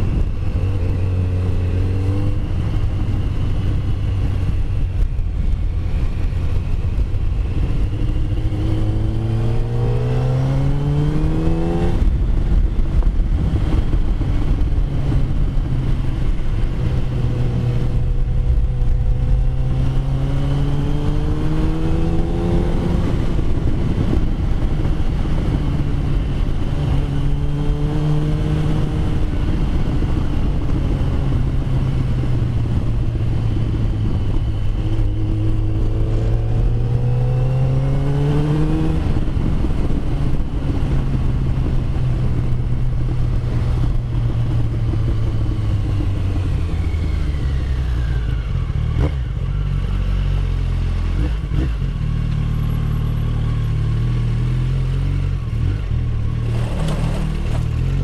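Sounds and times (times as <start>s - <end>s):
motorcycle engine running: 38.8s - 58.0s.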